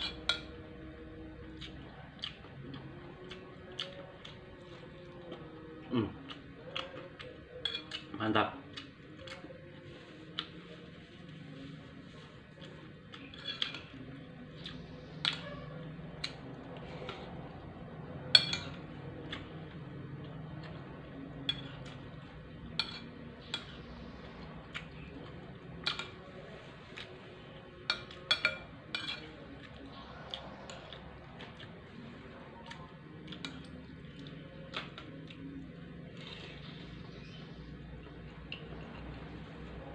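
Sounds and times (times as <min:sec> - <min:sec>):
low steady hum: 0:00.0 - 0:39.9
metal spoon clinking on plate: 0:07.6 - 0:08.0, 0:18.3 - 0:18.8, 0:22.7 - 0:23.8, 0:27.8 - 0:29.3.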